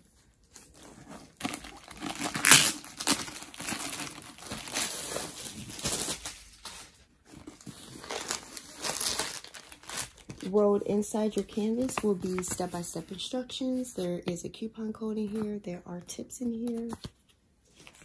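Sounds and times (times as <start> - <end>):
plastic wrap crinkling and tearing: 0.0 - 10.6.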